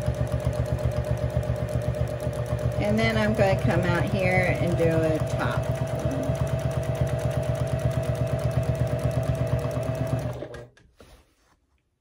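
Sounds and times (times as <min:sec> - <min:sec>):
sewing machine running: 0:00.0 - 0:10.7.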